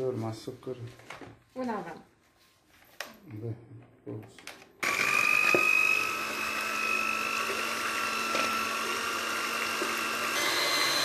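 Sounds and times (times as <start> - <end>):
electric hand mixer whisking: 4.8 - 11.0.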